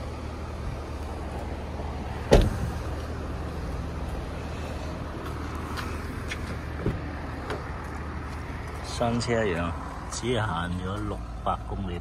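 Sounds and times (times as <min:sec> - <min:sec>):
car tailgate slamming shut: 0:02.2 - 0:02.7.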